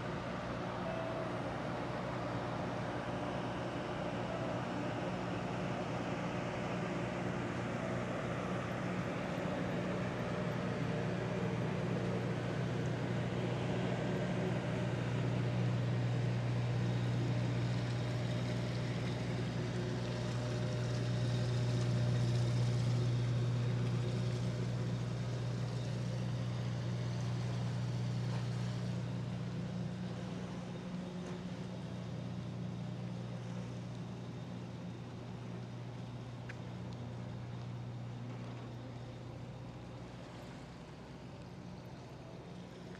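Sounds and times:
ship engine humming: 0.0 - 42.9.

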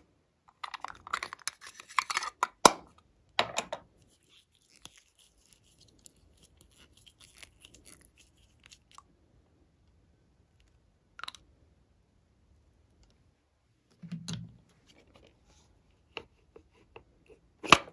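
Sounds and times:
plastic bottle cap twisting: 0.6 - 2.7.

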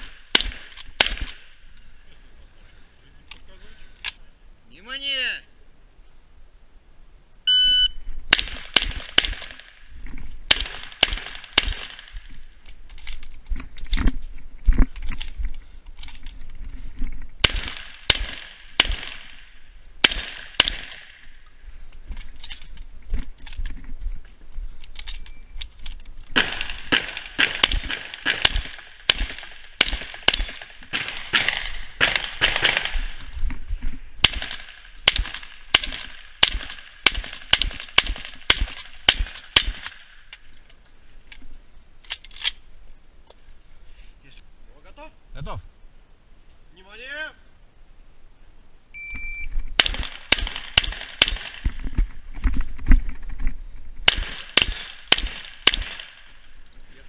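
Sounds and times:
shotgun shots: 0.0 - 1.5, 8.3 - 9.8, 10.5 - 12.2, 17.4 - 21.3, 26.4 - 33.2, 34.2 - 40.1, 49.8 - 51.8, 54.0 - 56.4
shot timer beep: 7.5 - 8.0, 49.0 - 49.5.

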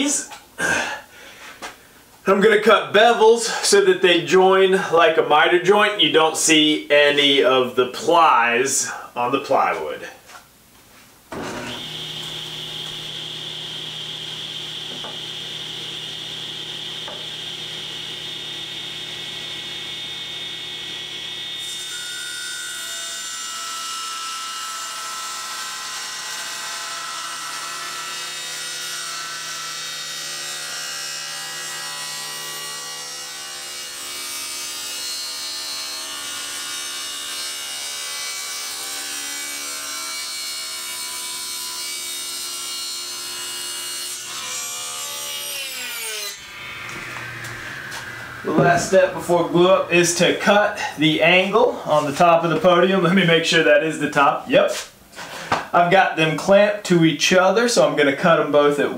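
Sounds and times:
table saw cutting plywood: 11.3 - 52.8.

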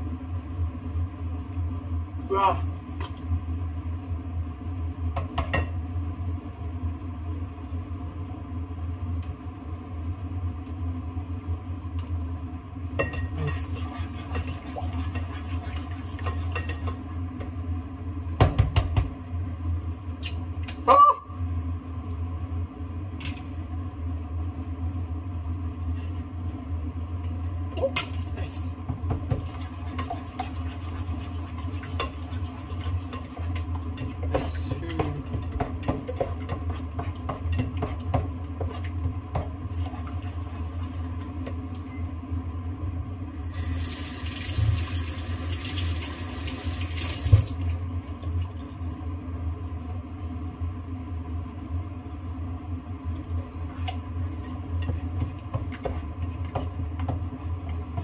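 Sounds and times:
steady low hum: 0.0 - 43.8, 47.4 - 58.0
spatula scraping a saucepan: 13.5 - 16.9
tap running into sink: 46.9 - 47.6.

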